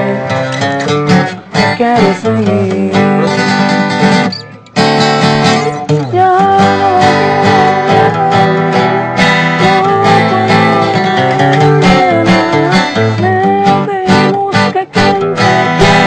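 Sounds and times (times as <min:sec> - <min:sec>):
acoustic guitar strumming: 0:00.0 - 0:16.0
person singing long notes: 0:01.6 - 0:03.6, 0:05.6 - 0:16.0.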